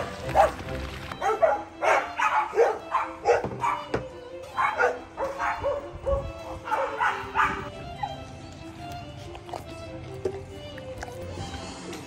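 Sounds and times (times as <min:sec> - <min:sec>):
dog barking excitedly: 0:00.0 - 0:00.6, 0:01.2 - 0:03.9, 0:04.6 - 0:07.7
background music: 0:00.0 - 0:12.0.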